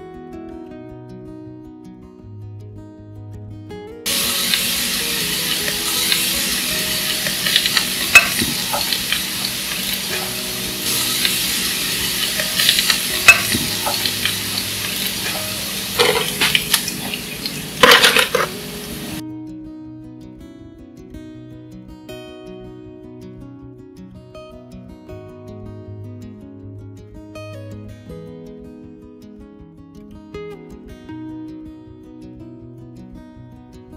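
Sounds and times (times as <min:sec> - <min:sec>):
garlic sizzling in hot oil: 0:04.1 - 0:19.2.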